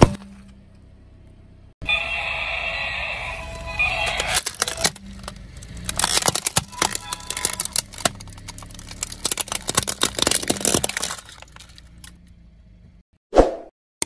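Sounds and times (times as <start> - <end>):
plastic toy cracking under tyre: 4.1 - 12.2.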